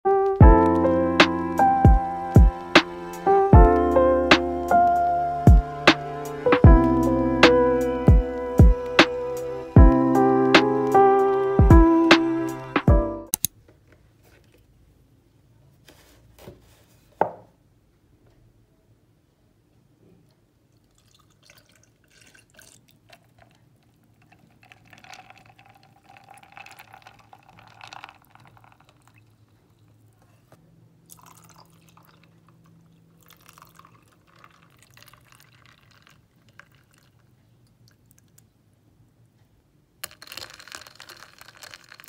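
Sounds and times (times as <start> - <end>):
liquid pouring over ice cubes: 20.8 - 30.0, 31.1 - 37.3, 40.0 - 42.0.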